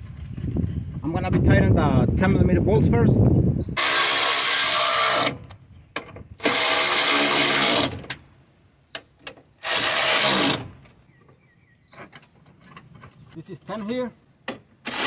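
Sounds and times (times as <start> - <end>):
power tool motor whining: 3.8 - 5.4, 6.4 - 8.0, 9.6 - 10.8.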